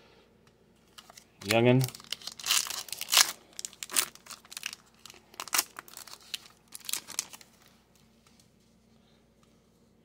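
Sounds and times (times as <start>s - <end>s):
foil wrapper crinkling: 0.9s - 7.7s.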